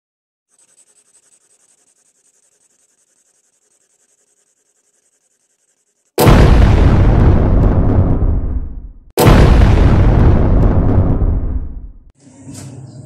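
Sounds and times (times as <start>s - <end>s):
explosion with deep rumble: 6.2s - 12.1s.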